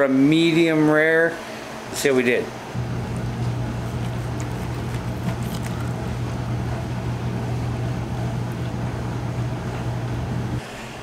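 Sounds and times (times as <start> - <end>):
dishwasher humming: 2.6 - 11.0.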